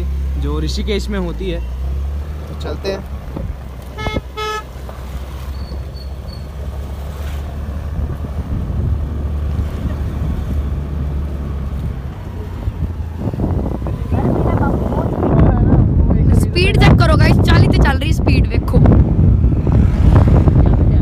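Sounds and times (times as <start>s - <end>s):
scooter engine and wind rumble: 0.0s - 21.0s
scooter horn toots: 4.0s - 4.7s.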